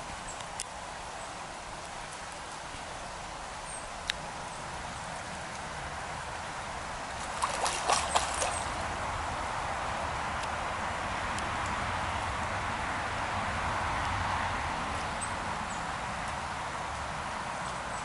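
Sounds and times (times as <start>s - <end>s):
stream running over gravel: 0.0s - 11.6s
fish splashing at surface: 7.2s - 8.8s.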